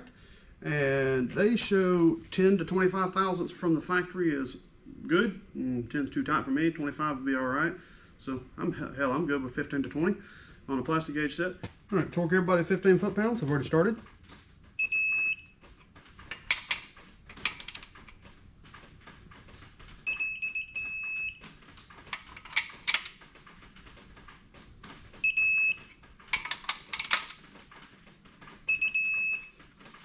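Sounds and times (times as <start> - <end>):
torque wrench beeping: 14.8 - 15.6, 25.2 - 26.0, 28.7 - 29.6.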